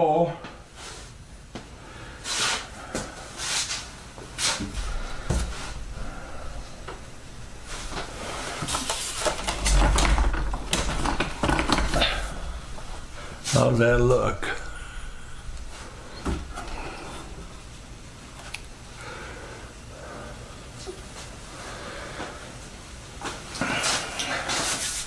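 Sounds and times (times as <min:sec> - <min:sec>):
knocks clicks and rustles: 0:04.6 - 0:17.7.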